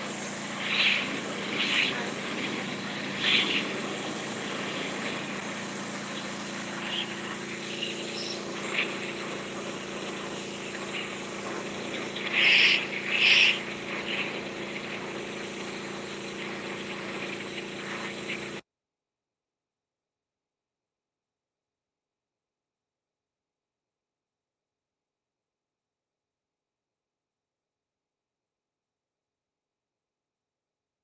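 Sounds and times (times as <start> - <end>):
pressure washer engine hum: 0.0 - 18.6
water jet hissing on concrete: 0.0 - 18.6.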